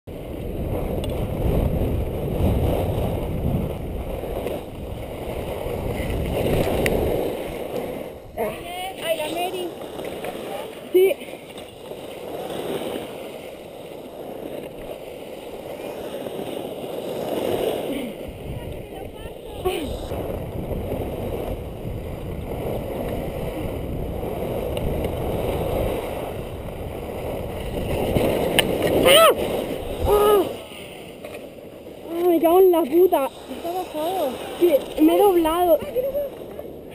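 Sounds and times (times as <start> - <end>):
wind buffeting microphone: 0.1 - 36.9
skis rushing over snow: 0.4 - 18.3.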